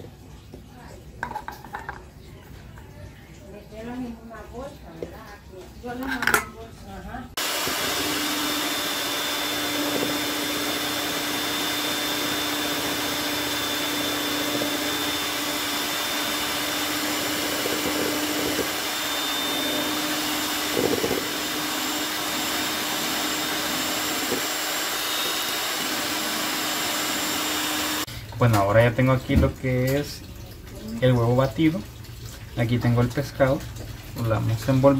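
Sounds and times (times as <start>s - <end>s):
electric hand mixer running: 7.4s - 28.1s
mixer rattle: 7.4s - 28.1s.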